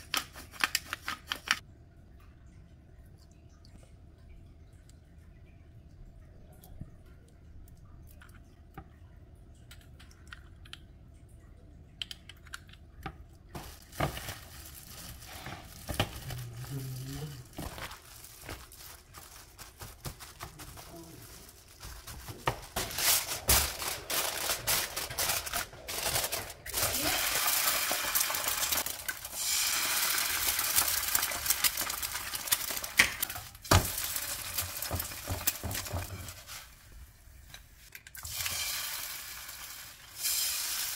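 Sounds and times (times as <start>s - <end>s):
aluminium foil tearing and crinkling: 13.6s - 35.7s.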